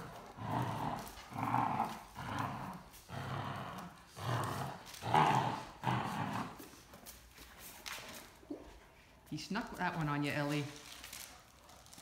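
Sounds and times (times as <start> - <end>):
dog growling: 0.0 - 6.7.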